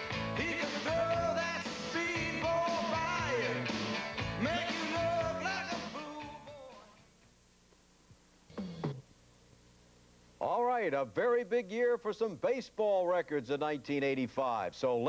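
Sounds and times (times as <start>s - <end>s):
rock and roll song with singing: 0.0s - 7.1s.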